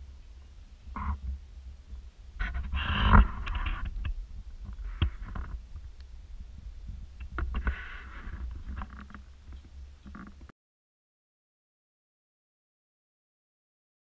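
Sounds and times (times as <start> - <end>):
rubbing and rustling: 2.4 - 5.9, 7.4 - 10.5
camera handling rumble: 2.4 - 6.1, 7.2 - 10.5
small clicks and knocks: 2.4 - 6.1, 7.2 - 10.5.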